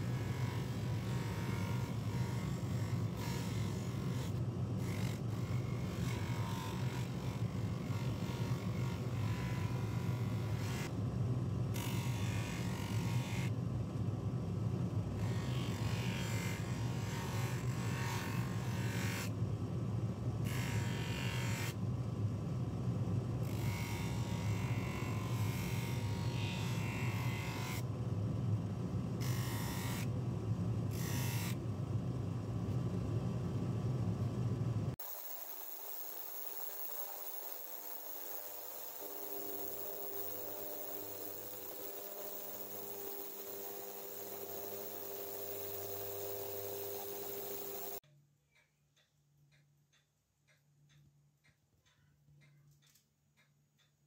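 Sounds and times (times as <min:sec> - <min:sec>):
polishing motor humming: 0:35.0 - 0:48.0
metal rubbing on buffing wheel: 0:35.2 - 0:48.0.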